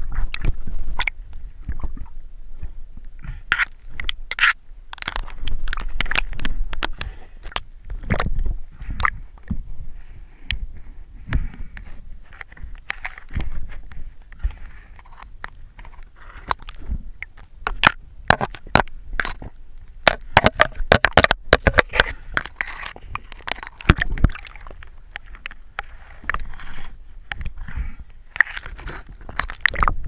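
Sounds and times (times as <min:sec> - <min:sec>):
water sloshing and splashing: 0:03.4 - 0:09.6, 0:12.4 - 0:30.0
sharp clicks and knocks: 0:12.4 - 0:25.6.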